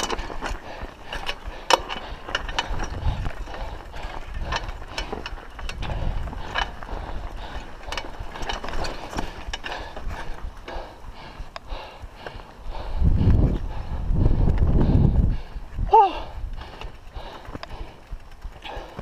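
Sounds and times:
bicycle clicking and rattling: 0.0 - 19.0.

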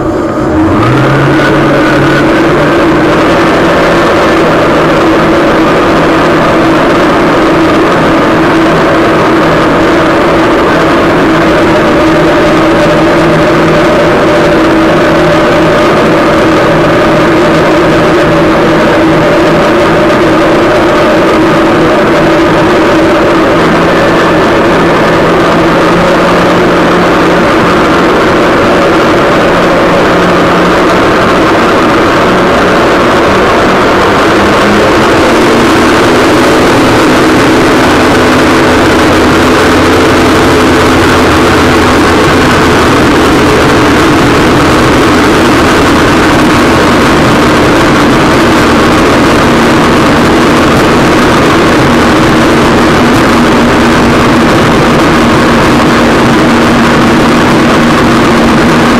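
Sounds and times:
water rushing: 0.0 - 58.9
watercraft engine running: 0.0 - 58.9
wind noise: 0.0 - 58.9.

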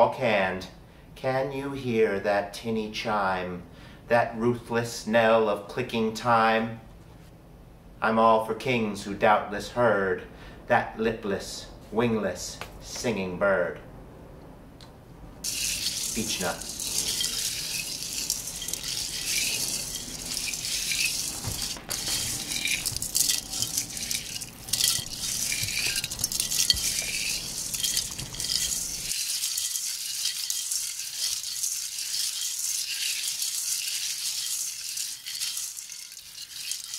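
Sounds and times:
nuts rattling in metal colander: 15.4 - 36.9.

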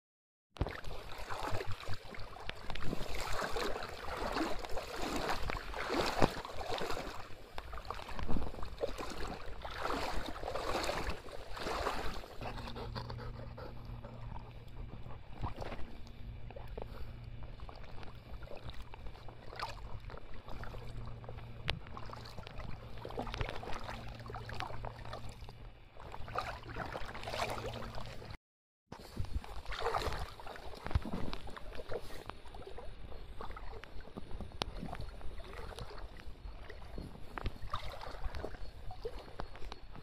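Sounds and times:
water sloshing and splashing: 0.6 - 28.4, 29.0 - 40.0
steady low hum: 4.0 - 28.4.

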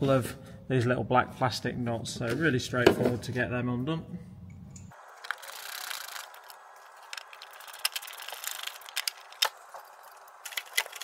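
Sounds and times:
small plastic clicks and rattles: 5.2 - 9.6, 10.4 - 11.0.

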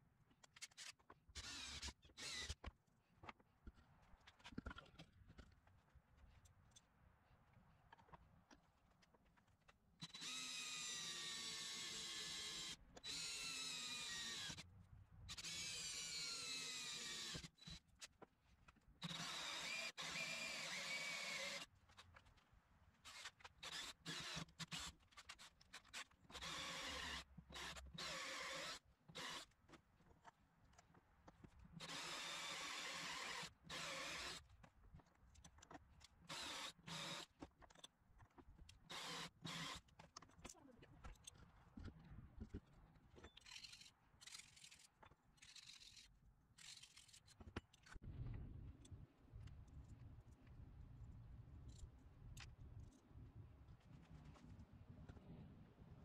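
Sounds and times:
cordless drill boring into metal: 0.7 - 2.6, 10.0 - 14.6, 15.3 - 17.8, 19.0 - 21.7, 23.0 - 29.6, 31.8 - 34.5, 36.3 - 37.4, 38.9 - 39.9.

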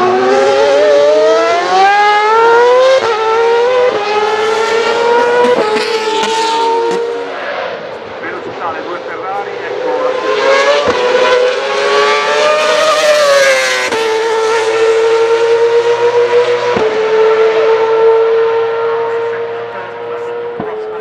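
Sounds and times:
race car engine at high revs: 0.0 - 21.0.

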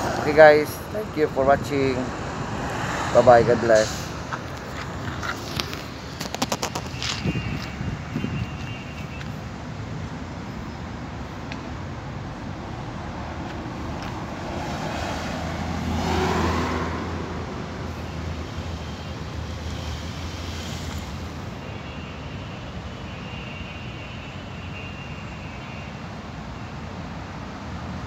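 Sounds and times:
steady traffic noise: 0.0 - 28.0
car passing close by: 1.7 - 5.8, 13.9 - 18.4.

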